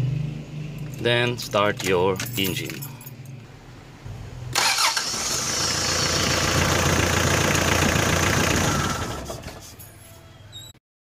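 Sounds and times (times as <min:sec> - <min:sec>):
diesel engine starting and idling: 0:04.4 - 0:09.8.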